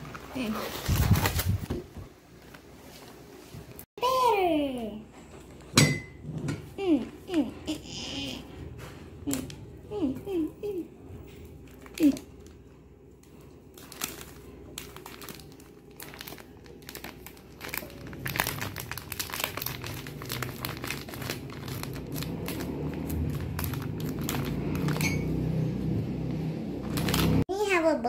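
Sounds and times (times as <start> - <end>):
plastic bag crinkling: 0.0 - 3.0, 11.4 - 25.5, 26.8 - 27.4.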